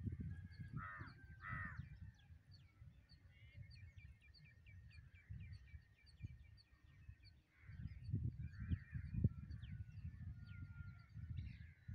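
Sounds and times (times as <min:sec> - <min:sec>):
wind rumbling on microphone: 0:00.0 - 0:11.9
harsh caw-like bird calls: 0:00.7 - 0:01.8.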